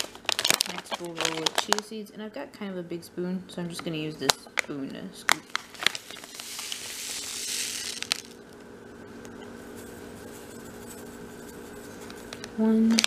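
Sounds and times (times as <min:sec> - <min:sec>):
seeds crinkling in package: 0:00.0 - 0:01.9, 0:05.4 - 0:08.5, 0:09.7 - 0:13.0
steady low hum: 0:00.0 - 0:13.0.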